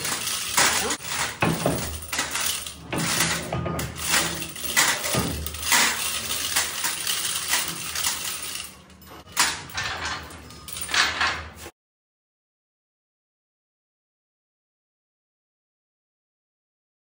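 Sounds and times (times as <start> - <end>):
steel chains clinking and rattling: 0.0 - 11.7.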